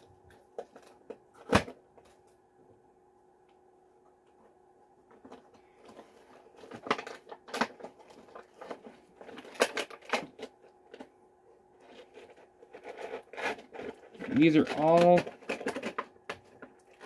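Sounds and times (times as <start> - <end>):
packaging clicks and crinkles: 5.2 - 11.1, 11.8 - 17.0.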